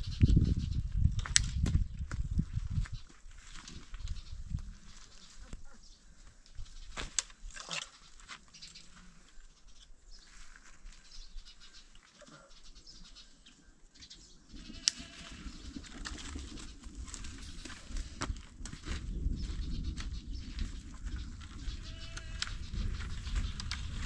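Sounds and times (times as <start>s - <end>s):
livestock bleating: 14.7s - 15.4s, 21.8s - 22.6s.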